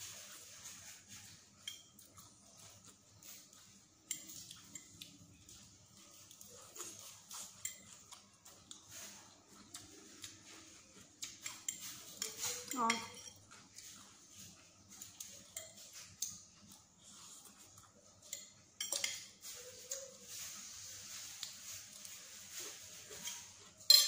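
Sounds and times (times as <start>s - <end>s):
cutlery clicking on a plate: 4.0s - 5.5s, 11.2s - 13.4s, 18.2s - 20.1s.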